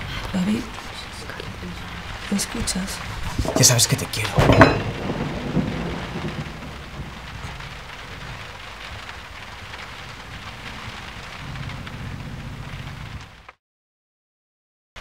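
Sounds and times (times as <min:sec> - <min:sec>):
rain-like hiss: 0:00.0 - 0:13.6
low rumble: 0:04.3 - 0:13.6.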